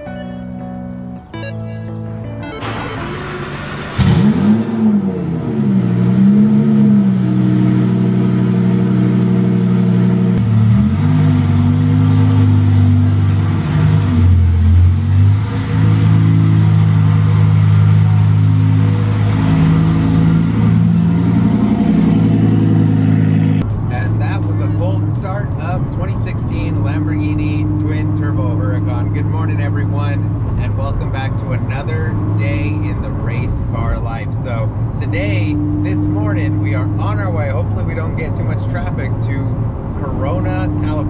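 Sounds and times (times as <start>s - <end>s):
sports car engine idling: 1.9s - 31.6s
sports car engine revving: 2.4s - 41.0s.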